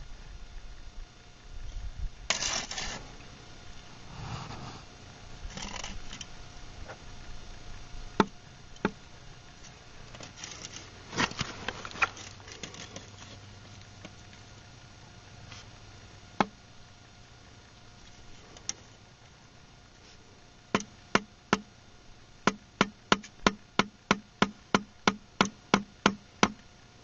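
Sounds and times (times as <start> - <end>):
scraping on concrete block: 2.3 - 3.1
knocks on concrete block: 22.5 - 26.6.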